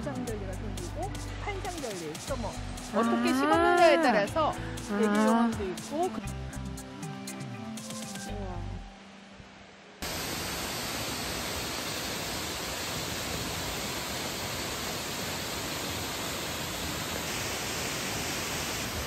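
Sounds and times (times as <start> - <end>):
waterfall rushing: 10.0 - 19.0.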